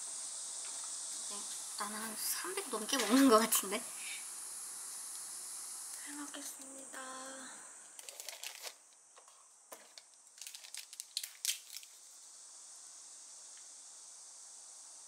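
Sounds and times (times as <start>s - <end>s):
faint hiss: 0.0s - 15.0s
crinkling handling noises: 8.0s - 12.0s.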